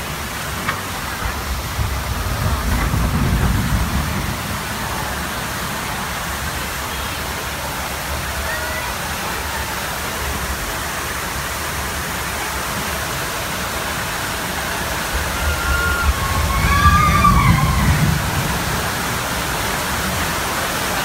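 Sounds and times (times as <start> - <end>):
water rushing down chute: 0.0 - 21.0
low rumble: 1.2 - 6.2, 14.8 - 20.5.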